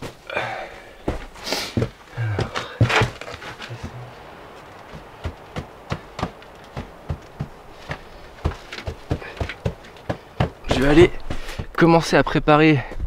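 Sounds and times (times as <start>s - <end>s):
sharp taps and knocks: 4.7s - 11.8s.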